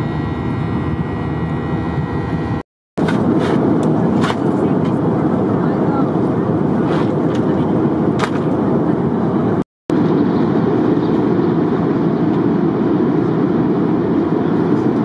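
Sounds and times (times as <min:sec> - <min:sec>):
jet airliner cabin noise: 0:00.0 - 0:15.0.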